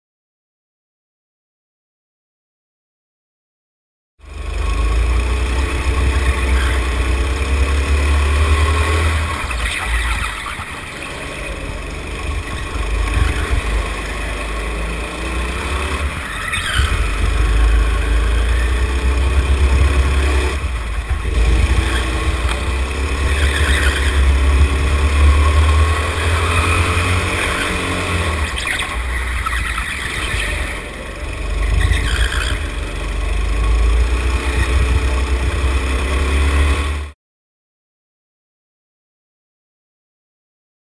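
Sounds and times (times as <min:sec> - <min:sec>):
go-kart engine revving: 0:04.2 - 0:37.2
heavy low rumble: 0:11.1 - 0:26.4.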